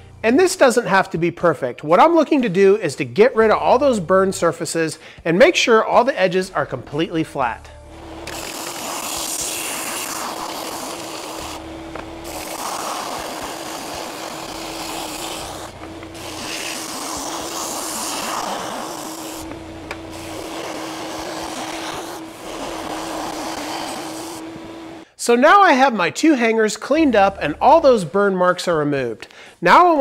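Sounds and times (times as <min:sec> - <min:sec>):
belt sander motor hum: 0:07.9 - 0:25.0
gritty wood sanding: 0:08.0 - 0:25.0.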